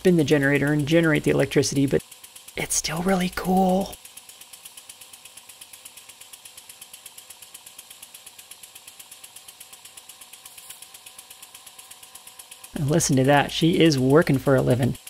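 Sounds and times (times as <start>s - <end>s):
faint dynamo hum: 0.0s - 15.0s
model steam engine beating: 0.0s - 15.0s.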